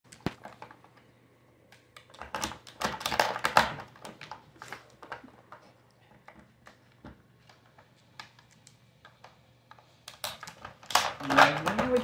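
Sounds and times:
plastic pieces clicking and clattering: 0:01.8 - 0:06.4, 0:07.4 - 0:12.0.

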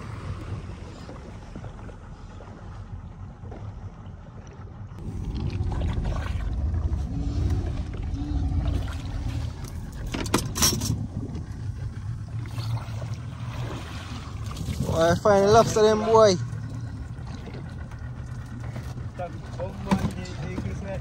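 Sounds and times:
boat engine rumble: 0:00.0 - 0:21.0
water sloshing at hull: 0:00.0 - 0:21.0.

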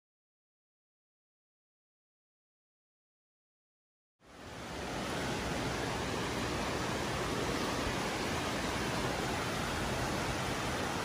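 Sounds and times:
fast rushing creek water: 0:04.2 - 0:11.0.

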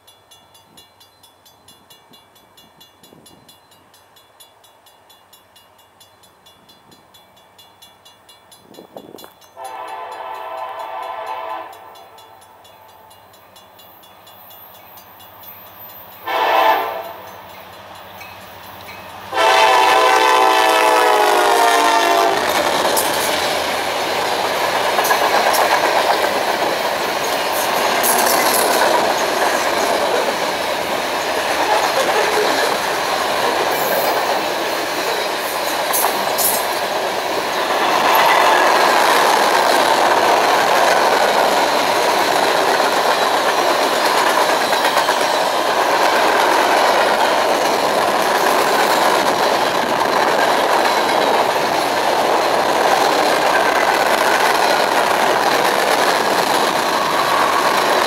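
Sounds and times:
freight train wheels rumbling: 0:00.0 - 0:58.0
locomotive horn: 0:09.6 - 0:12.5, 0:16.2 - 0:17.3, 0:19.3 - 0:22.5.

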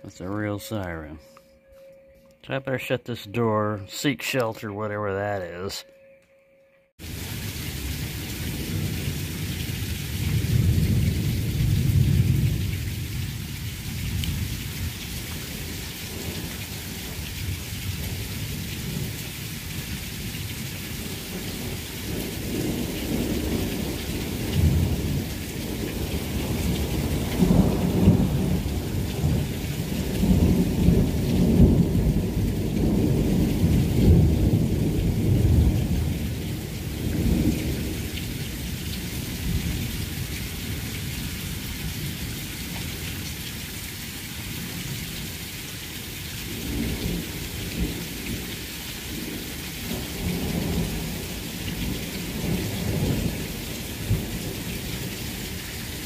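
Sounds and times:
thunder rolling: 0:07.0 - 0:41.4, 0:49.1 - 0:56.0
heavy rain pouring: 0:07.0 - 0:56.0
water streaming off roof: 0:07.0 - 0:56.0.

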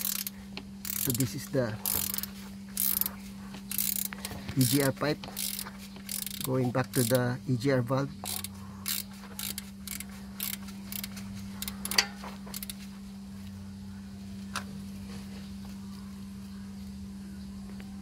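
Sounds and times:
spanner clicking on metal bolts: 0:00.0 - 0:03.1, 0:03.7 - 0:07.3, 0:08.2 - 0:12.8
steady low hum: 0:00.0 - 0:18.0.

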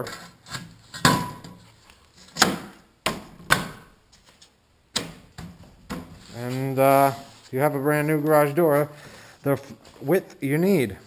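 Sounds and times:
scraping and handling: 0:04.1 - 0:08.9.

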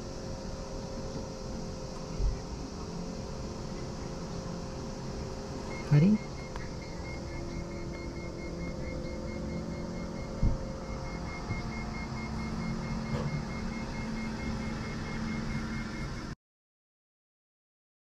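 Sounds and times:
faint high whine: 0:00.0 - 0:16.4
machine hum: 0:00.0 - 0:16.4
low thump: 0:10.4 - 0:10.7.

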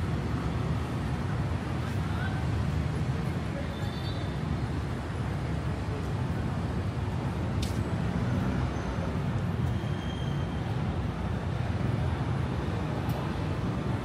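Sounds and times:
street traffic rumble: 0:00.0 - 0:14.0.

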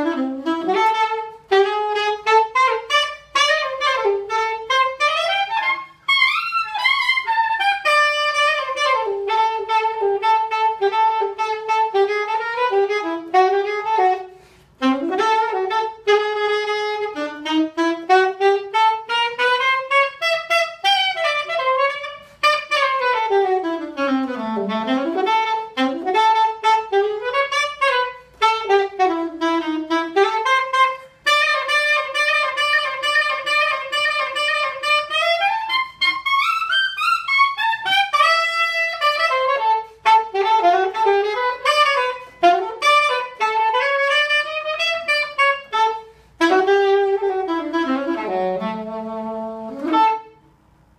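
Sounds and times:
solo saxophone improvising: 0:00.0 - 0:50.6.

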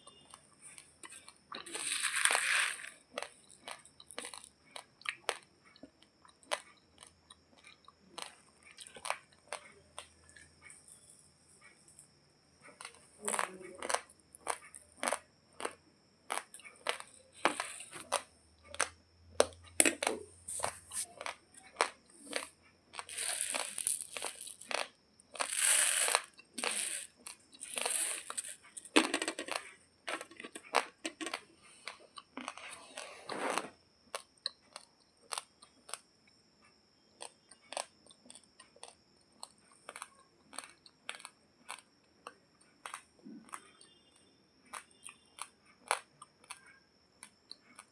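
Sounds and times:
crunching raw rice: 0:00.0 - 0:11.1, 0:12.0 - 0:47.9
rustling foil packet: 0:01.7 - 0:02.9.

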